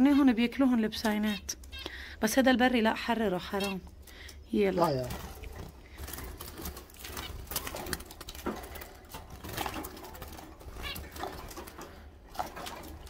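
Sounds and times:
birds fluttering in cage: 0:04.8 - 0:13.0.

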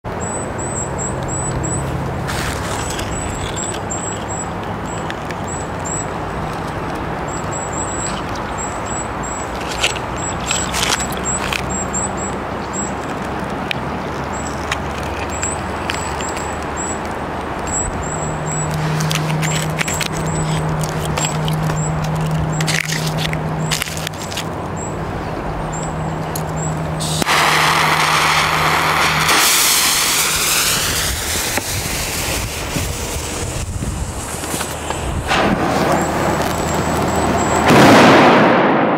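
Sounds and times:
firecracker fuse hissing: 0:02.3 - 0:03.4, 0:27.0 - 0:38.1.

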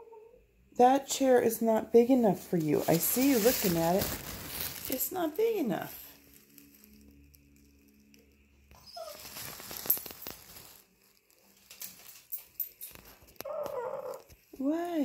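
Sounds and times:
dog whining: 0:00.0 - 0:00.4, 0:08.7 - 0:09.4, 0:13.4 - 0:14.3
rustling: 0:01.2 - 0:15.0.

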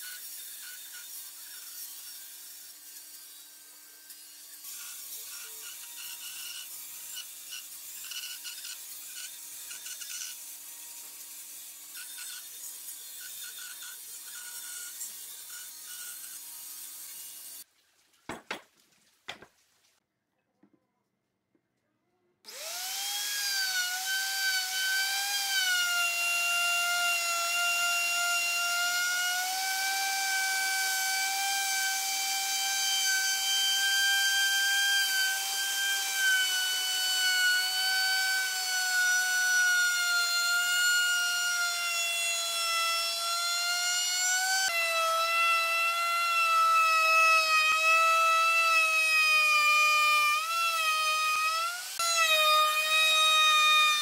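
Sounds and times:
band saw cutting wood: 0:00.0 - 0:17.6, 0:22.5 - 0:54.0
wood router whining: 0:22.5 - 0:54.0.

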